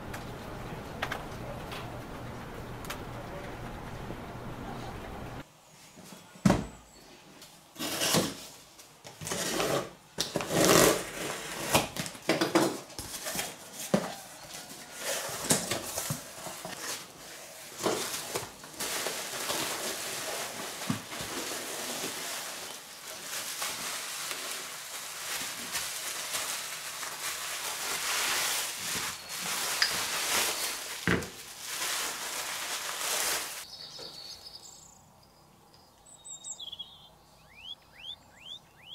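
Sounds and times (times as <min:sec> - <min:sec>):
packing foam and bubble wrap rustling: 0:07.8 - 0:33.8.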